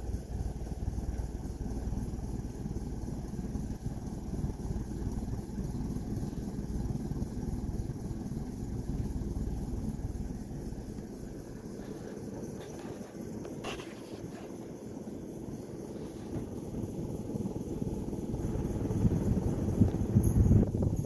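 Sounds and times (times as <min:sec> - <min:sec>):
ceiling fan rushing air: 0:00.0 - 0:21.0
wind buffeting microphone: 0:16.4 - 0:21.0.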